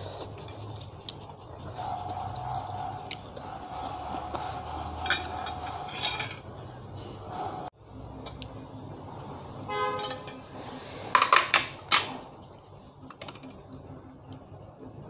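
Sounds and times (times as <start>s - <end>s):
cutlery clinking on ceramic plate: 5.0s - 6.5s, 10.0s - 10.4s.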